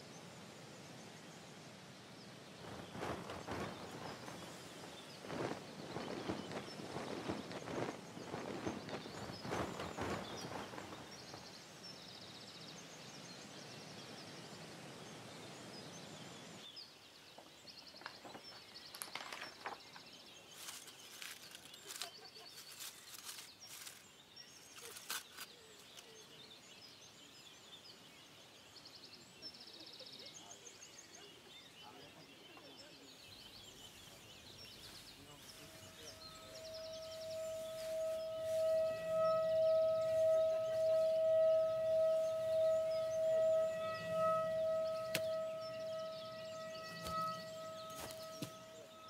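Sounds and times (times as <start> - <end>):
steady rushing hiss: 0.0 - 16.6, 33.0 - 49.0
clicks and cracks: 20.6 - 24.0, 24.7 - 26.1
bird trilling: 35.5 - 49.0.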